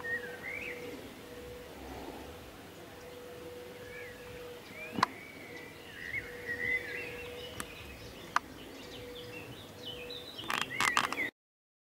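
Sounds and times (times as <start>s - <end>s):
faint steady hum: 0.0s - 10.4s
birds chirping and twittering: 0.0s - 11.3s
sharp clicks: 10.4s - 11.3s.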